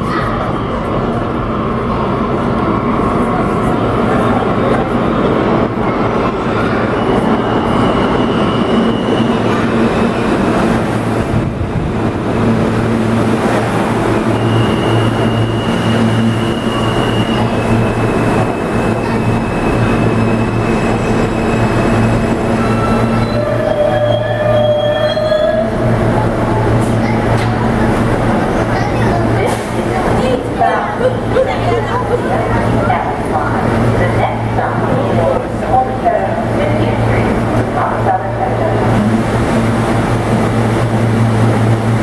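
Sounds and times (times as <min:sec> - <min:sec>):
subway train wheels rumbling: 0:00.0 - 0:42.0
high-pitched wheel squeals: 0:14.3 - 0:25.8.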